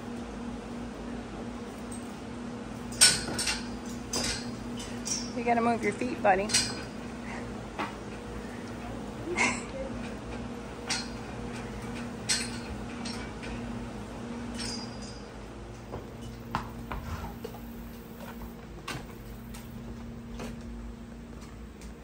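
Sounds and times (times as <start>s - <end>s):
steady low hum: 0.0s - 22.0s
hooves knocking on barn floor: 2.8s - 9.2s, 14.6s - 22.0s.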